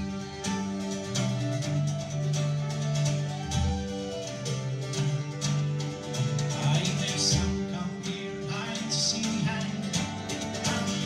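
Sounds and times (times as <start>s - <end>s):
whistle melody: 0.0s - 8.9s
drums: 0.0s - 11.0s
fiddle: 0.0s - 11.0s
folk band playing lively tune: 0.0s - 11.0s
plucked strings: 0.0s - 11.0s.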